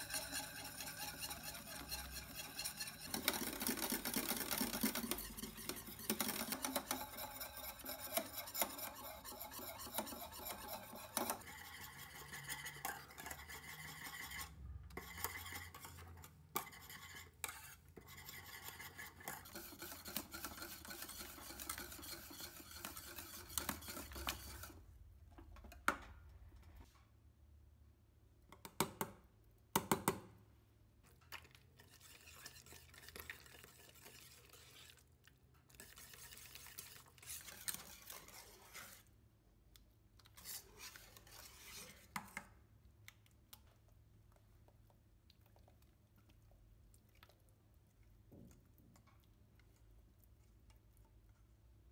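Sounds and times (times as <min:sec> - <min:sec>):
whisk scraping saucepan: 0:00.0 - 0:25.0, 0:31.1 - 0:39.2, 0:40.2 - 0:42.6.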